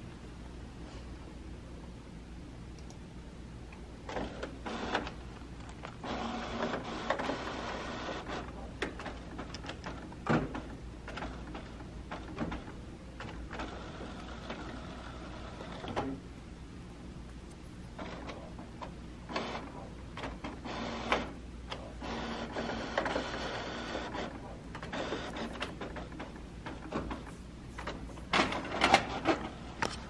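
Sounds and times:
printer mechanism whirring: 0:04.0 - 0:16.2, 0:17.9 - 0:30.0.

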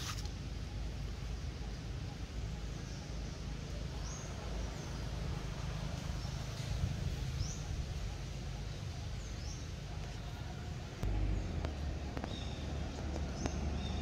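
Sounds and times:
low rumble: 0:10.9 - 0:14.0.

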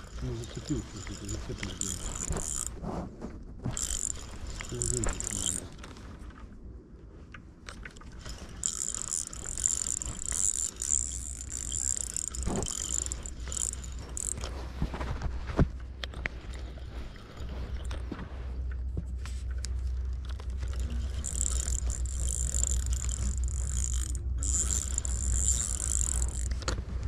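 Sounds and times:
fishing reel clicks: 0:00.0 - 0:02.8, 0:03.7 - 0:06.0, 0:07.7 - 0:14.6, 0:20.0 - 0:26.8
fishing reel gears whirring: 0:00.0 - 0:02.8, 0:03.7 - 0:06.2, 0:07.6 - 0:15.0, 0:16.0 - 0:18.8, 0:19.4 - 0:26.8.

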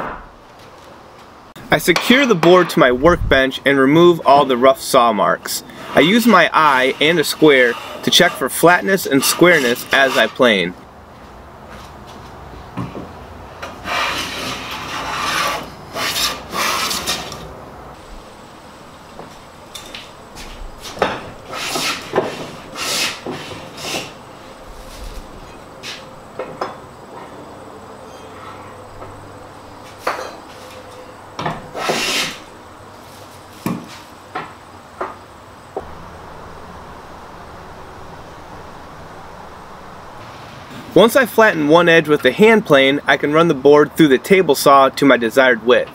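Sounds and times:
hand plane rasping on wood: 0:05.8 - 0:10.4, 0:13.8 - 0:17.2, 0:21.5 - 0:24.1.

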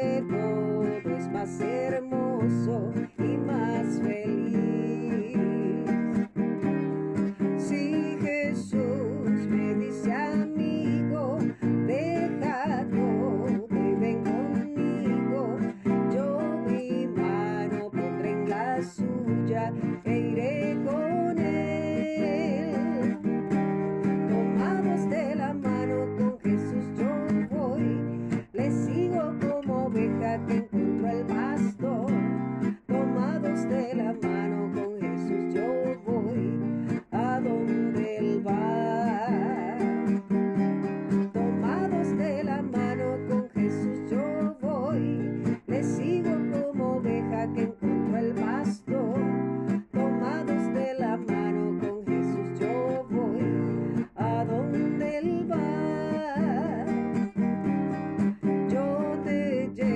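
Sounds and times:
strummed acoustic guitar music: 0:00.0 - 0:59.9.

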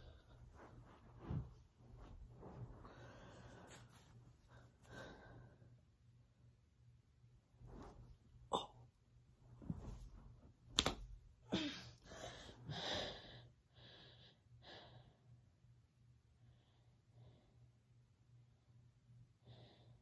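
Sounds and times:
woman breathing hard: 0:02.8 - 0:03.9, 0:04.5 - 0:05.7, 0:11.5 - 0:15.3.

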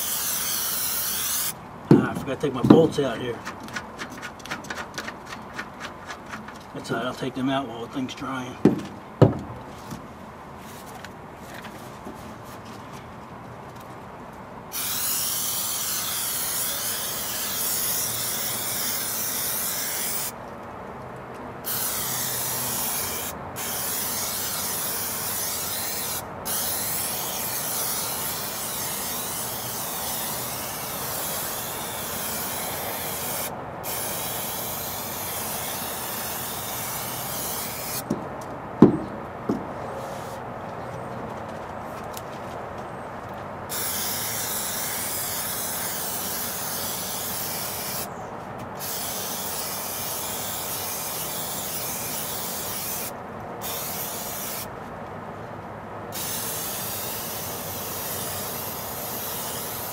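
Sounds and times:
aerosol can spray hissing: 0:14.8 - 0:20.3, 0:43.7 - 0:48.1, 0:48.8 - 0:54.7.

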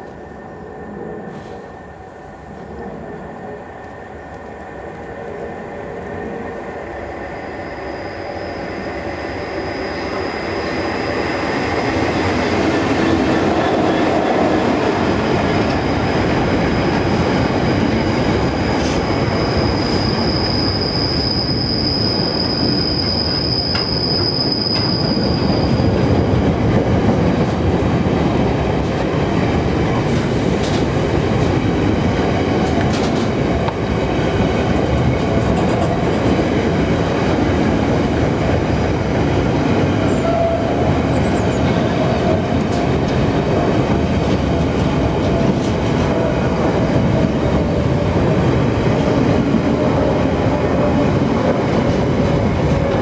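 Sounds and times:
train wheels rumbling on rail: 0:00.9 - 0:53.0
high-pitched wheel squeal: 0:18.8 - 0:26.0.

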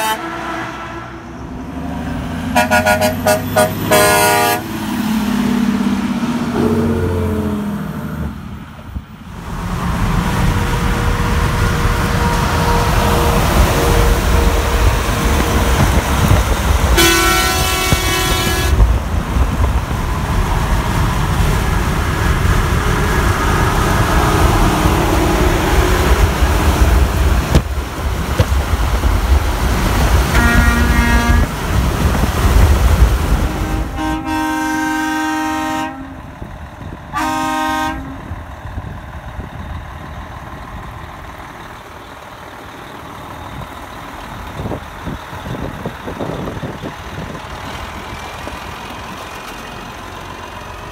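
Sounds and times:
truck air horn blasts: 0:00.0 - 0:01.4, 0:02.5 - 0:04.8, 0:10.4 - 0:18.9, 0:30.3 - 0:31.6, 0:33.4 - 0:36.3, 0:37.1 - 0:38.3
highway road and wind noise: 0:00.0 - 0:50.9.

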